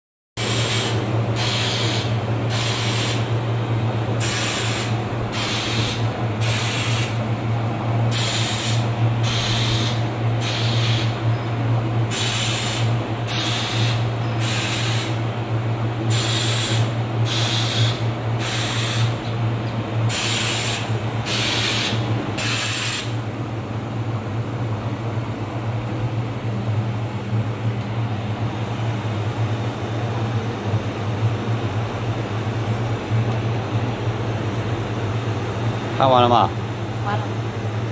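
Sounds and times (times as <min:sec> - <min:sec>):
laser welder hissing bursts: 0:00.4 - 0:03.3, 0:04.2 - 0:07.2, 0:08.1 - 0:11.2, 0:12.1 - 0:15.2, 0:16.1 - 0:19.2, 0:20.1 - 0:23.2
machine low hum: 0:00.4 - 0:37.9.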